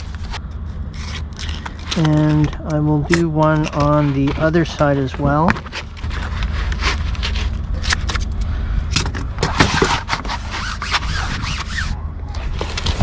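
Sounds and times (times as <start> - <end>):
low rumble: 0.0 - 9.6.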